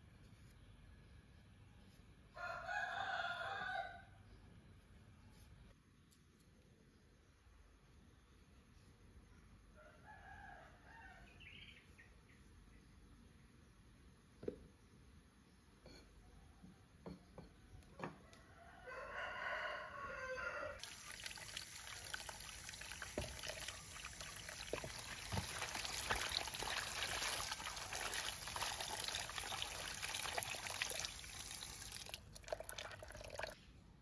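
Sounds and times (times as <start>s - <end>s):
rooster crowing: 2.3s - 4.2s, 9.8s - 11.4s, 18.2s - 20.9s
water pouring from hose into basin: 20.8s - 33.6s
vegetables rubbed by hand in water: 22.2s - 31.9s.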